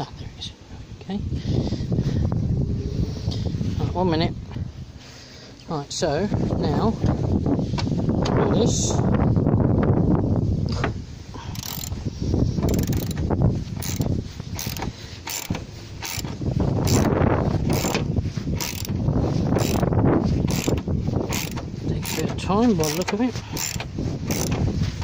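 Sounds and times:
socket ratchet clicking: 11.5s - 12.0s, 12.6s - 19.0s, 19.6s - 24.6s.

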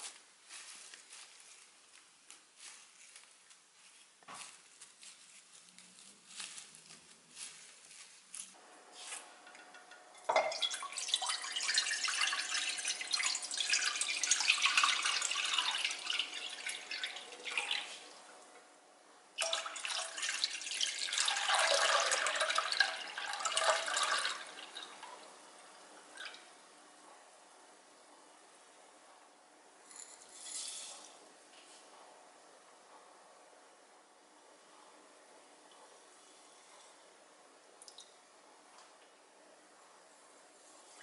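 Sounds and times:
sauce pouring: 9.5s - 18.0s, 19.4s - 24.9s
water pouring into a pot: 9.5s - 18.2s, 19.4s - 25.3s.

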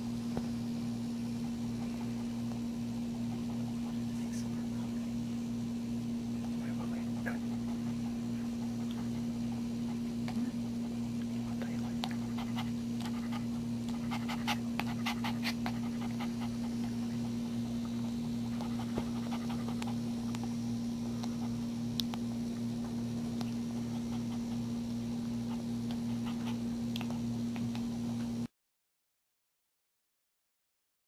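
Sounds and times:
steady low hum: 0.0s - 28.5s
dog panting: 1.2s - 5.0s, 6.4s - 21.8s, 23.3s - 28.4s.

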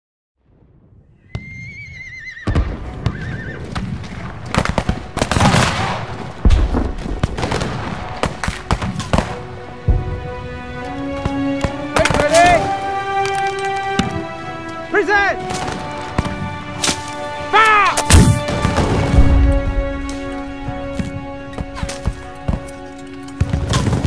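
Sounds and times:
film score music: 0.6s - 24.0s
horse whinnying: 1.4s - 3.8s
heavy booms: 3.8s - 10.5s, 18.1s - 21.2s
musket shots: 4.5s - 9.5s.

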